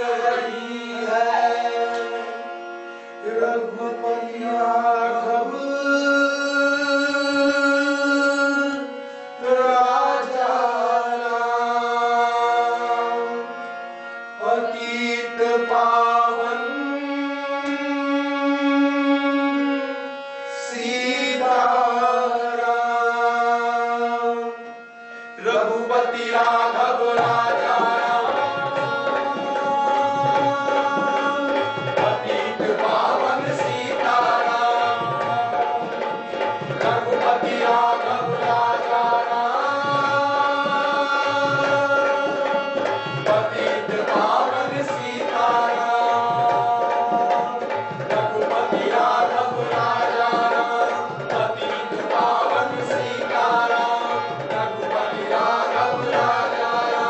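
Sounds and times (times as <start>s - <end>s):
actors singing long held notes: 25.4s - 57.0s.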